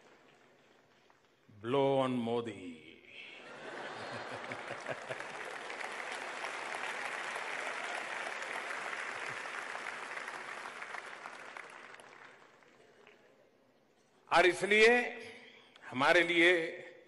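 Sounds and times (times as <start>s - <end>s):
audience applauding: 3.9s - 13.3s.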